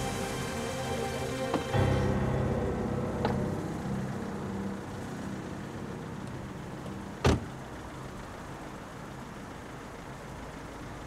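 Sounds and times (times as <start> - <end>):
background music: 0.0 - 6.8
car humming: 0.0 - 11.0
car door slamming: 7.2 - 7.5.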